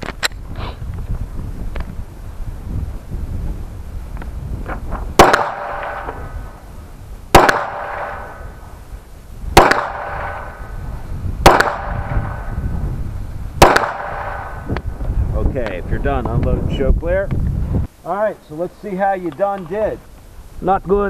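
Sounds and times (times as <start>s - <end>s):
pistol shots with ringing: 5.2s - 6.3s, 7.3s - 8.4s, 9.6s - 10.6s, 11.4s - 12.6s, 13.6s - 14.6s.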